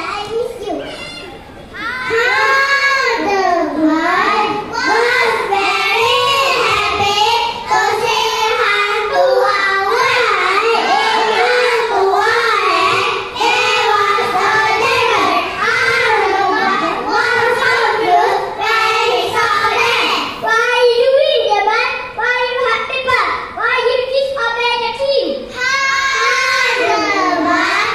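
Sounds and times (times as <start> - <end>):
children singing in unison: 1.8 - 20.4, 25.5 - 27.9.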